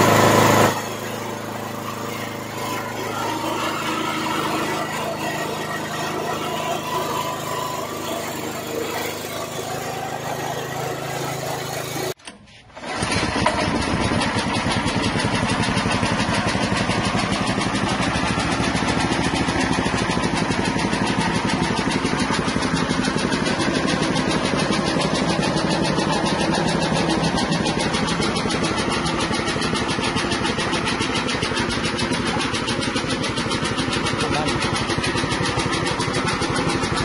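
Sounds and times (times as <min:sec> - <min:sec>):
small petrol engine running: 0:00.0 - 0:37.0.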